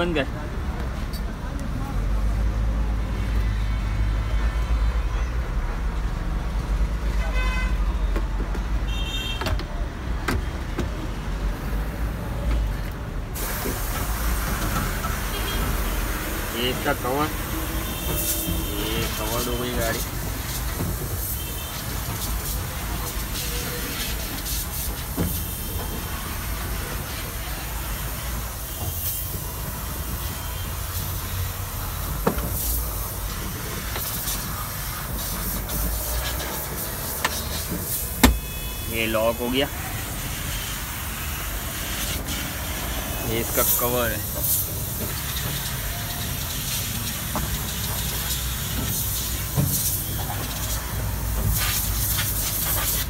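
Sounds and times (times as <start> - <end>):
steady hiss: 13.4 - 53.0.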